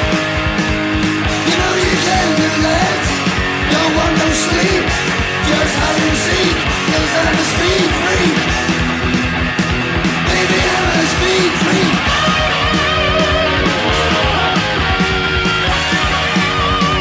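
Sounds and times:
loud rock music: 0.0 - 17.0
person singing: 1.3 - 8.6, 10.2 - 15.2.

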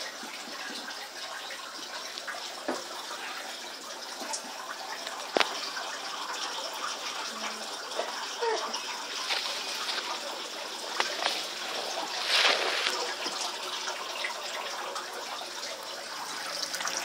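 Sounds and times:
water trickling from hose: 0.0 - 17.0
water splash: 9.1 - 14.2.

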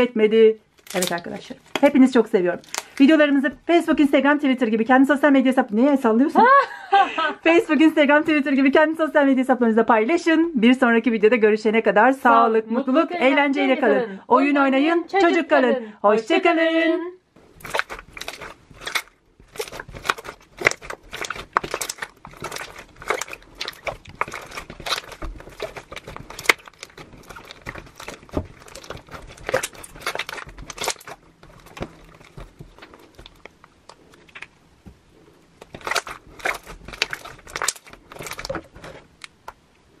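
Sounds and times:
slime squelching and popping: 0.7 - 4.1, 17.4 - 39.6.

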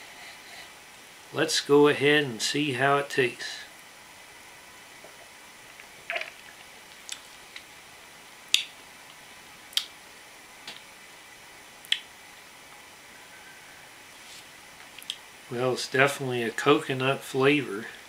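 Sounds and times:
person swallowing: 6.1 - 6.6
wet mouth clicks and lip smacks: 9.7 - 9.9, 11.8 - 12.1.

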